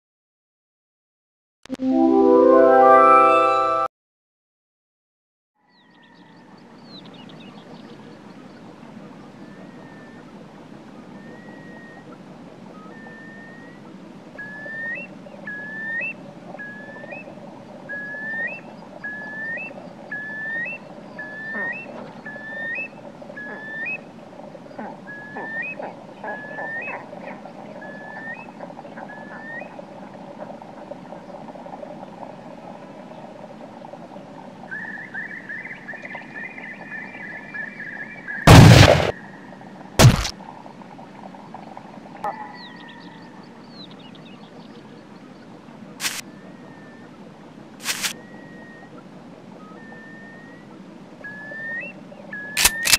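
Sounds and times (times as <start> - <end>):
bird whistling calls: 11.1 - 12.1, 12.7 - 24.1, 25.1 - 27.0, 27.8 - 29.8, 46.1 - 47.2, 47.8 - 49.0, 49.6 - 52.9
shotgun blast: 38.5 - 39.2, 40.0 - 40.3.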